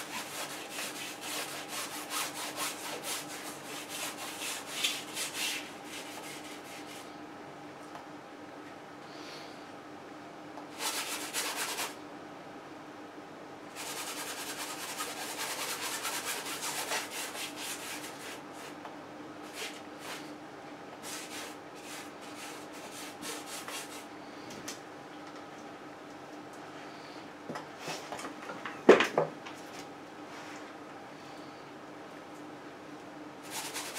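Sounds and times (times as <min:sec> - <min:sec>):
brush scrubbing paint on canvas: 0:00.0 - 0:07.1, 0:13.8 - 0:18.8, 0:21.0 - 0:24.0, 0:33.4 - 0:33.9
faint steady hum: 0:00.0 - 0:33.9.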